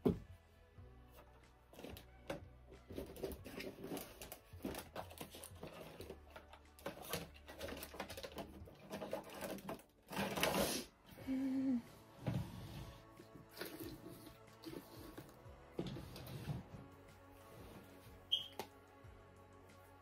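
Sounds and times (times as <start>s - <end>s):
rustling scrape: 8.7s - 11.0s, 12.2s - 18.3s.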